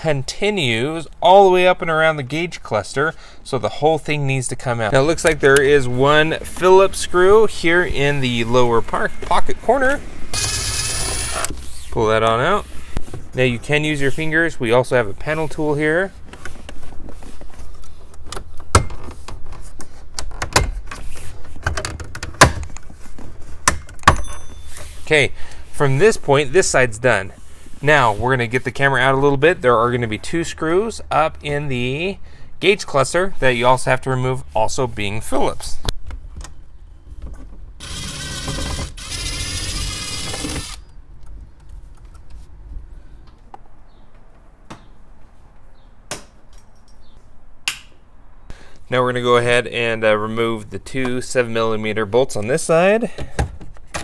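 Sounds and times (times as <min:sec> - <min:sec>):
cordless drill motor whine: 0:10.4 - 0:11.5, 0:37.8 - 0:40.9.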